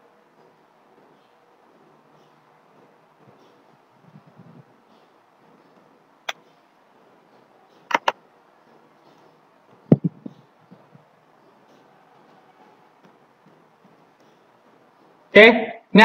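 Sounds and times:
computer mouse clicks: 0:07.9 - 0:08.2.

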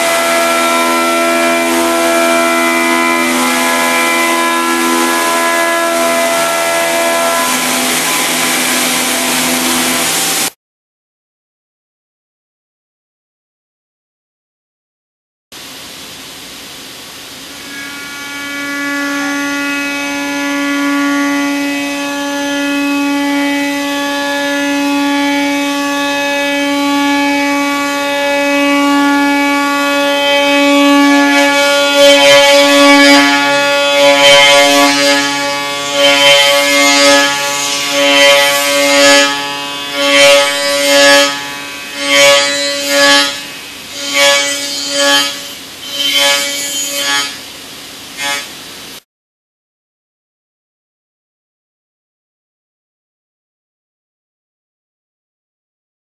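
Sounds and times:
milling cutter cutting metal: 0:00.0 - 0:10.5, 0:21.3 - 0:47.5
spindle whine: 0:00.0 - 0:10.6.

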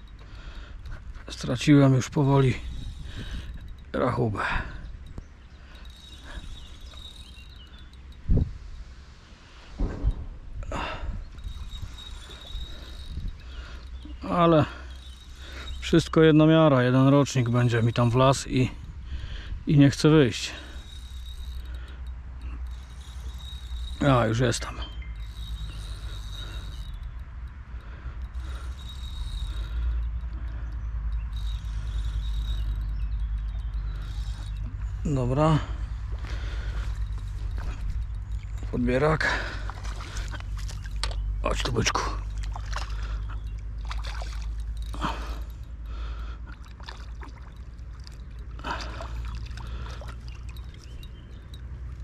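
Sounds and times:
crickets chirping: 0:00.0 - 0:52.0
steady low rumble: 0:00.0 - 0:52.0
water splashing and sloshing: 0:36.1 - 0:52.0.

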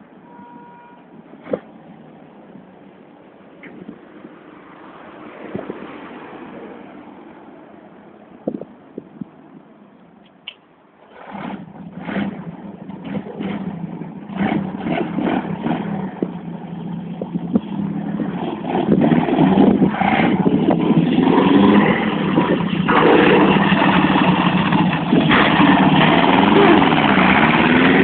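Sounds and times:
trike engine running: 0:11.0 - 0:28.0.

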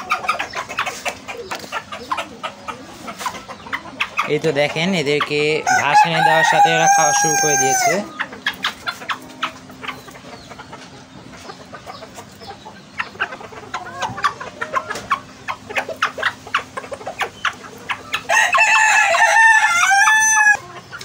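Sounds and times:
chickens clucking: 0:00.0 - 0:21.0
chickens pecking on concrete: 0:00.0 - 0:21.0
rooster crowing: 0:05.6 - 0:08.1, 0:18.2 - 0:20.6.

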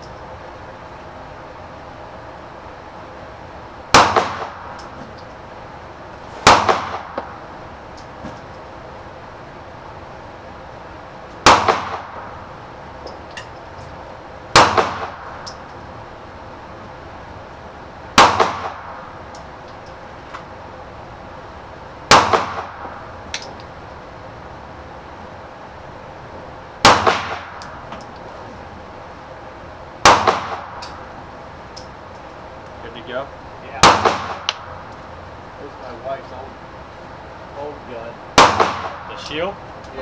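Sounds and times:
pistol shots echoing: 0:03.9 - 0:04.8, 0:06.4 - 0:07.3, 0:11.4 - 0:12.4, 0:14.5 - 0:15.4, 0:18.2 - 0:19.0, 0:22.1 - 0:22.9, 0:26.8 - 0:27.7, 0:30.0 - 0:31.0, 0:33.8 - 0:34.7, 0:38.4 - 0:39.2
faint metallic clinks: 0:08.0 - 0:08.8.

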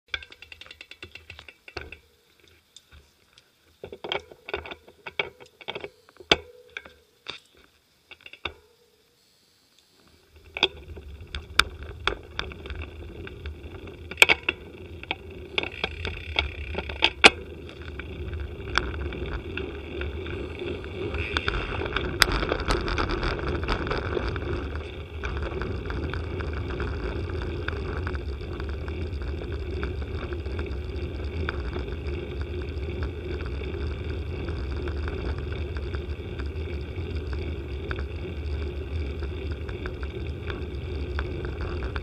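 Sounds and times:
bicycle clicks and rattles: 0:00.1 - 0:08.7, 0:10.3 - 0:42.0
wind and tyres rumbling on road: 0:10.3 - 0:42.0.

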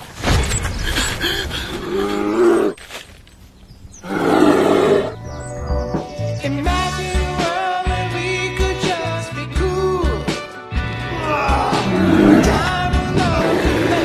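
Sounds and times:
bear growling and roaring: 0:01.8 - 0:02.8, 0:04.0 - 0:05.2, 0:11.1 - 0:14.0
background music: 0:04.2 - 0:14.0.

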